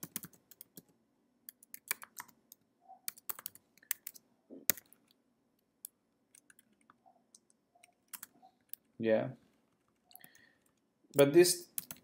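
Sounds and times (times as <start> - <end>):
typing on computer keyboard: 0.0 - 0.9, 1.5 - 2.4, 3.0 - 5.0, 6.3 - 8.9, 11.7 - 12.0.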